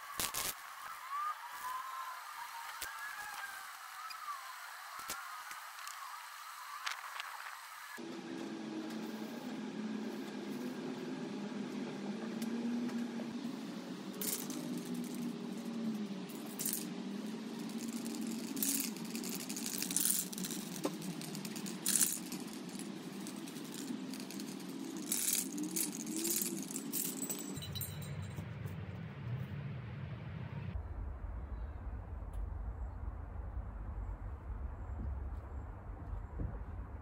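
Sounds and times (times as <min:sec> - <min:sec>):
steady hum: 0:01.8 - 0:37.0
short rattles and clicks: 0:14.2 - 0:15.7, 0:17.5 - 0:28.2.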